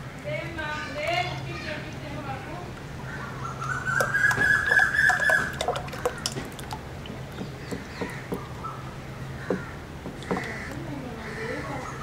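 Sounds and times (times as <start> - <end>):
dripping: 3.6 - 11.3
mud slurry pouring and spattering: 4.0 - 7.4.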